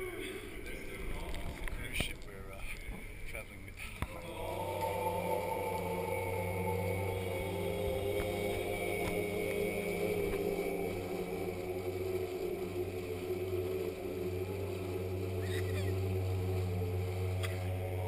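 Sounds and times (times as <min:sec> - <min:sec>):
outboard motor droning: 0:04.1 - 0:18.0.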